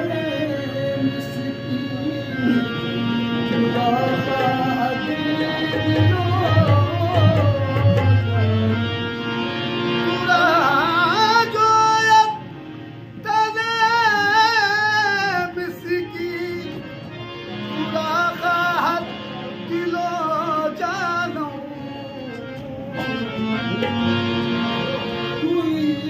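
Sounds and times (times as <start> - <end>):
harmoniums holding notes: 0.0 - 26.0.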